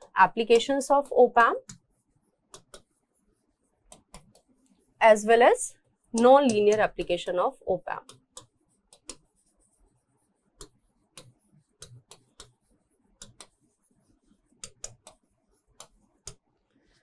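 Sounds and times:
stylus tapping on screen: 1.4 - 3.0, 3.9 - 4.7, 6.2 - 9.8, 10.6 - 13.8, 14.4 - 16.4.

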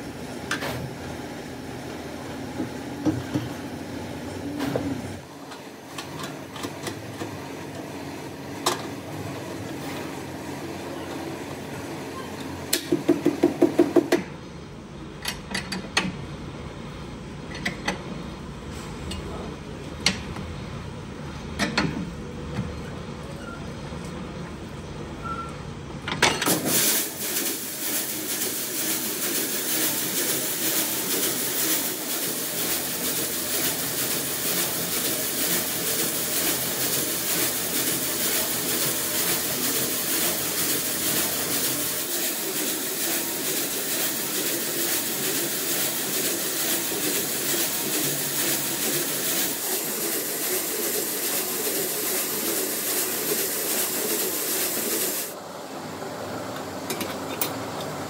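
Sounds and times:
metalworking machinery running: 26.1 - 58.0.

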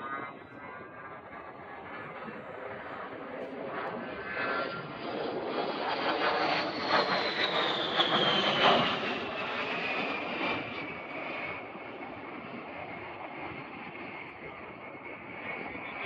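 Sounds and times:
high jet whine falling in pitch: 0.0 - 12.1
jet flying past: 0.0 - 16.0.

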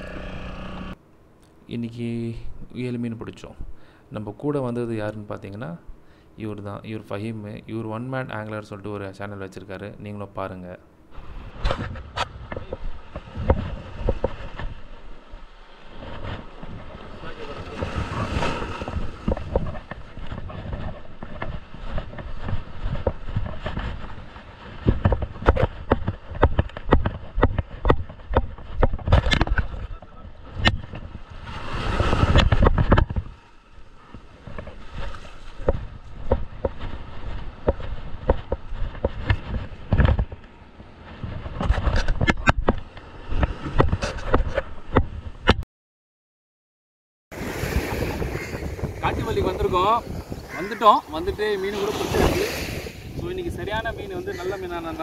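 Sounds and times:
surf washing on beach: 12.6 - 25.2, 29.8 - 40.0, 47.3 - 55.0
scattered knocks and bumps: 24.8 - 30.0.

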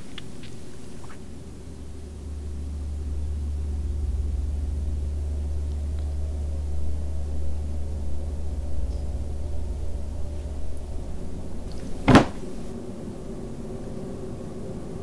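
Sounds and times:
low rumble: 1.6 - 12.8.

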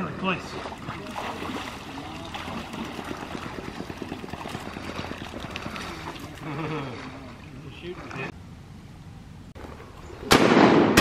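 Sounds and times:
dog splashing through water: 0.5 - 7.3.

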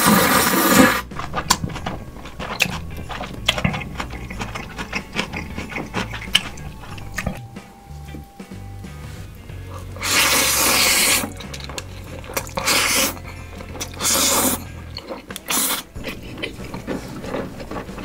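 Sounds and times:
low steady hum: 0.8 - 18.0
hard objects clicking and clacking: 11.2 - 14.0.

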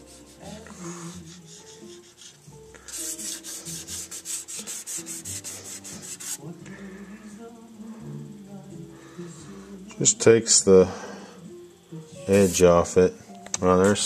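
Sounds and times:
rubbing strokes on guitar edge: 1.2 - 6.4.

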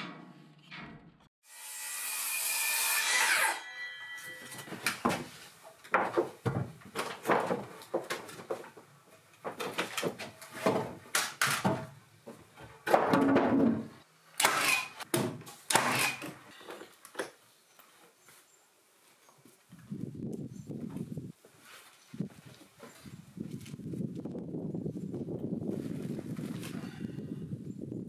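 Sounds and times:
knocks and scrapes of timber: 4.4 - 14.0.

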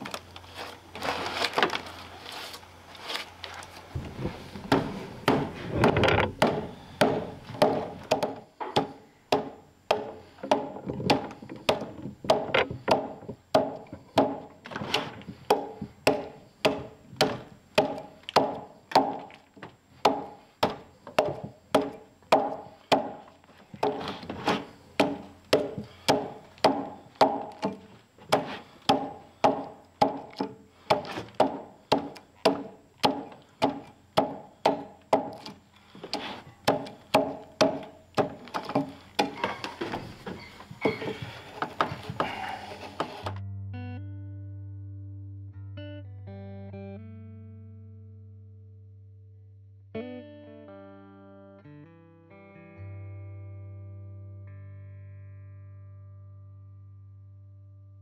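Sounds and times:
axe chopping into log: 4.7 - 19.4, 20.0 - 23.2, 23.8 - 40.0.

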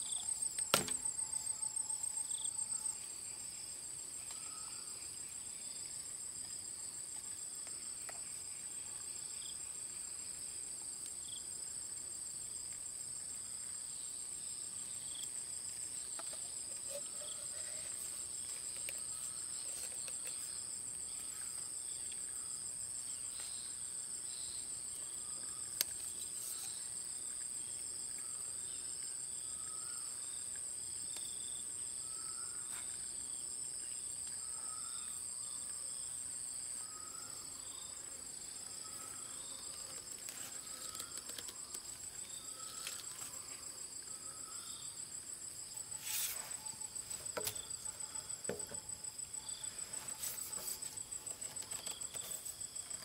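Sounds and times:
insects buzzing and trilling: 0.0 - 53.0
soft insect chirp: 0.0 - 53.0.

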